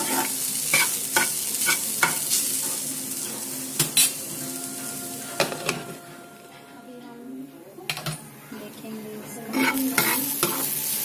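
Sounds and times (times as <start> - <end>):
metal spoon scraping a pan: 0.0 - 2.9, 9.5 - 11.0
food sizzling in a frying pan: 0.0 - 6.5, 8.8 - 11.0.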